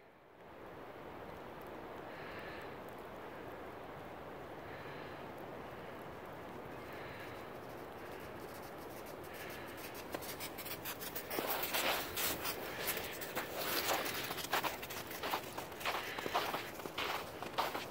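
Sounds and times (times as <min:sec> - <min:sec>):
steady faint hiss: 0:00.0 - 0:17.9
footsteps crunching in icy snow: 0:08.4 - 0:17.9.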